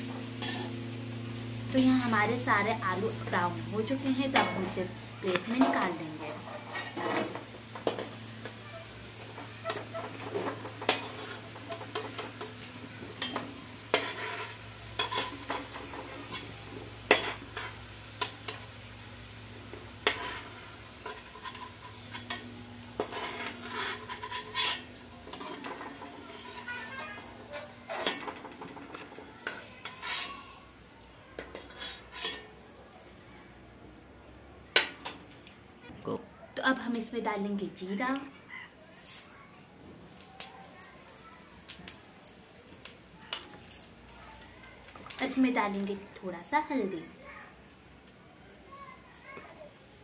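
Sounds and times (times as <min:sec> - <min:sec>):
faint sizzling of hot fat: 0:00.0 - 0:35.2, 0:36.8 - 0:50.0
metal spoon scraping a pan: 0:00.3 - 0:00.9, 0:01.5 - 0:18.8, 0:19.6 - 0:30.6, 0:31.4 - 0:33.1.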